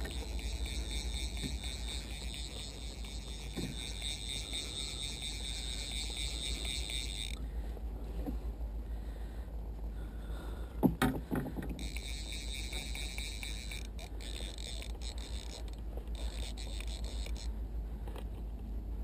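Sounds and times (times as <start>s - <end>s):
fly reel ratcheting: 0.0s - 7.4s, 11.8s - 17.5s.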